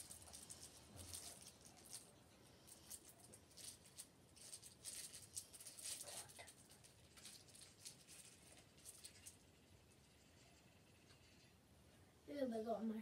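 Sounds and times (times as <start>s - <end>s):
wrapper crinkling: 0.0s - 9.7s.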